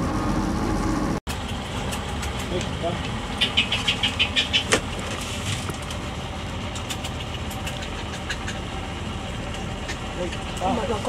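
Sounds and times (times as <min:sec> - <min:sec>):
boat engine running: 0:00.0 - 0:11.0
sharp ticks: 0:06.6 - 0:08.7.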